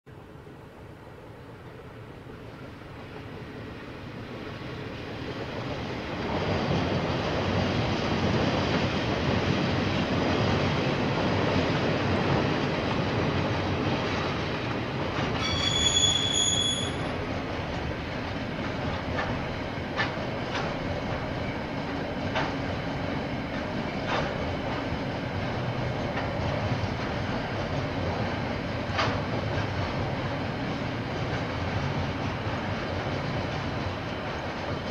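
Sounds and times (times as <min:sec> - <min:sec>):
freight train rumbling: 0:00.1 - 0:34.9
wheel squeal: 0:15.3 - 0:17.2
wheels clicking over rail: 0:28.8 - 0:29.8.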